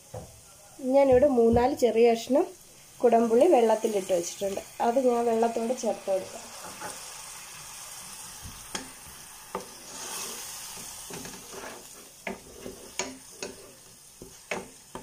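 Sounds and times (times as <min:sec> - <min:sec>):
curry sizzling in oil: 0:00.0 - 0:15.0
wooden spatula scraping pan: 0:09.5 - 0:15.0.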